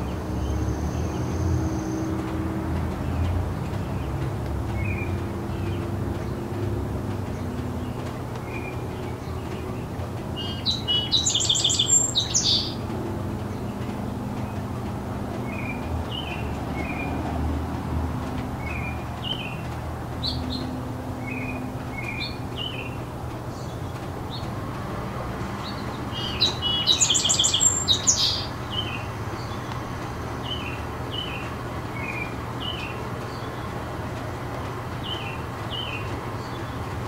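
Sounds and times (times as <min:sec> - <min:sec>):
distant city traffic rumble: 0:00.0 - 0:37.0
songbird song phrase: 0:02.8 - 0:24.6, 0:25.5 - 0:33.9
bird chirps: 0:07.3 - 0:12.9, 0:25.6 - 0:29.7.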